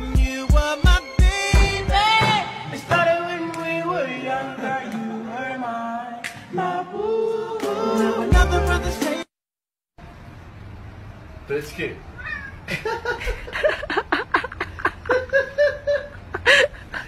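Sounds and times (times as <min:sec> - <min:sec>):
music with sung vocals: 0:00.0 - 0:09.3.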